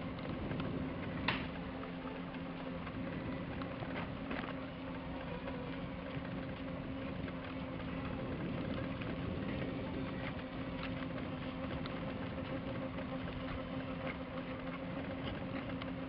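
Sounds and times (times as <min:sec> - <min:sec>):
electric scooter motor humming: 0:00.0 - 0:16.0.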